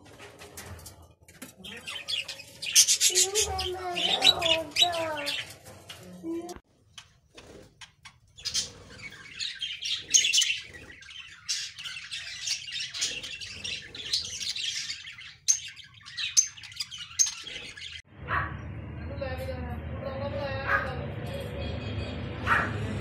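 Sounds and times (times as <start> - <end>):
budgerigars chattering: 8.4 - 18.0.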